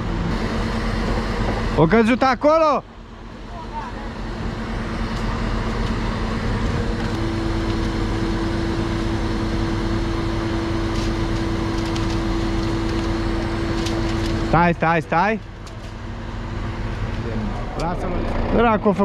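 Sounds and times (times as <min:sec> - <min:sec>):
crane engine and hydraulic drone: 0:00.0 - 0:19.0
high-pitched whine: 0:00.0 - 0:19.0.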